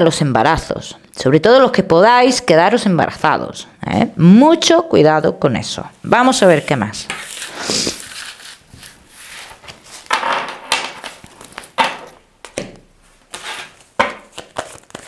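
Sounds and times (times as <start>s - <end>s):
cards rustling and tapping: 7.2s - 15.0s.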